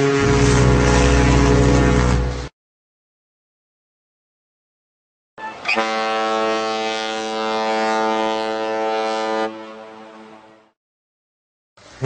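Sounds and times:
boat horn blast: 0:00.0 - 0:02.5, 0:05.4 - 0:10.8.

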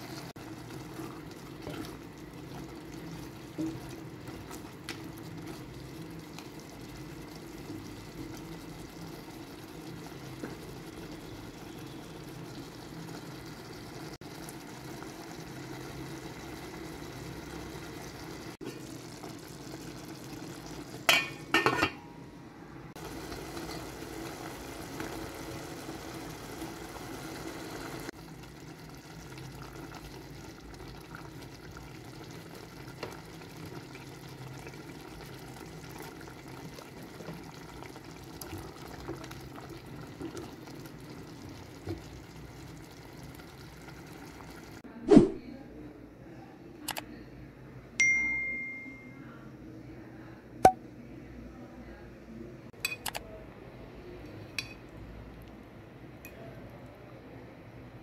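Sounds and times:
stew bubbling: 0:23.0 - 0:44.8.

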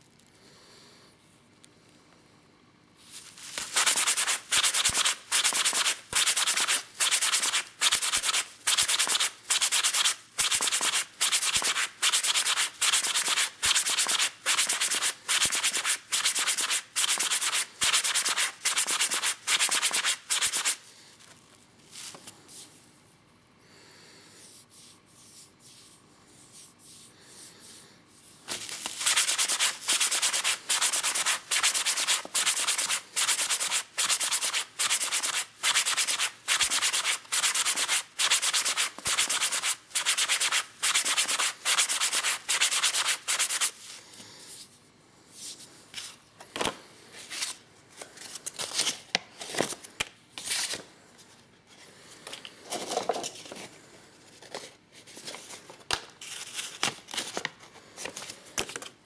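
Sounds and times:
faint handling sounds: 0:03.0 - 0:03.8
wood sanding strokes: 0:03.7 - 0:20.8, 0:29.0 - 0:43.7.

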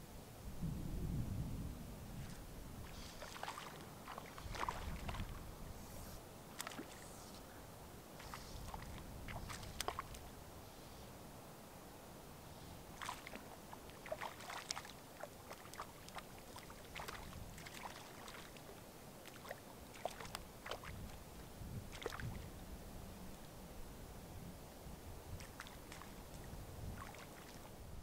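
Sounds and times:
wind rumble: 0:00.5 - 0:05.9
lake water lapping: 0:02.8 - 0:07.4, 0:08.1 - 0:10.4, 0:12.9 - 0:22.6, 0:25.3 - 0:27.8
small splashes and clicks: 0:02.9 - 0:05.4, 0:06.5 - 0:07.2, 0:08.2 - 0:10.3, 0:13.0 - 0:21.2, 0:21.9 - 0:22.4, 0:25.3 - 0:27.7.

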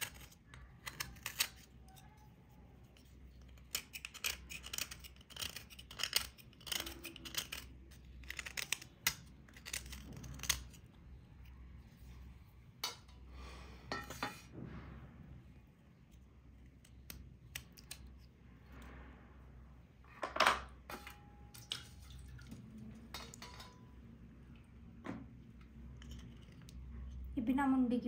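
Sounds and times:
serrated blade scraping crust: 0:00.0 - 0:02.1, 0:03.5 - 0:10.9.

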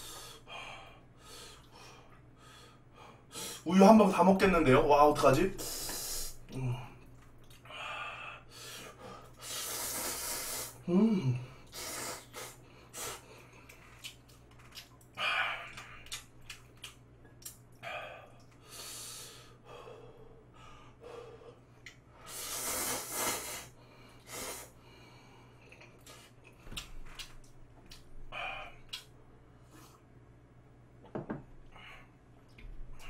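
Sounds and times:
hissing breaths: 0:05.6 - 0:06.5, 0:07.6 - 0:10.8, 0:11.5 - 0:13.7, 0:17.8 - 0:26.3
person slurping noodles: 0:09.4 - 0:10.8, 0:11.7 - 0:13.2, 0:22.3 - 0:23.7
chewing: 0:13.5 - 0:17.6.

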